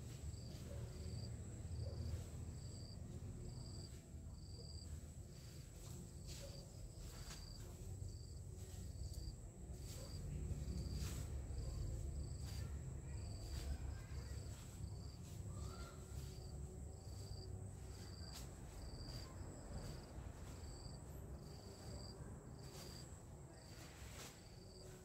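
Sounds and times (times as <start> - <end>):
rustling leaves and snapping stems: 5.3 - 22.0.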